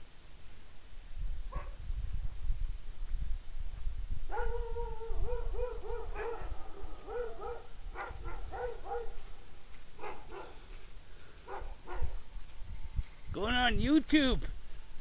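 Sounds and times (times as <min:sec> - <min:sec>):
dog yipping: 0:01.5 - 0:01.8, 0:04.3 - 0:09.2, 0:10.0 - 0:10.6, 0:11.5 - 0:12.5.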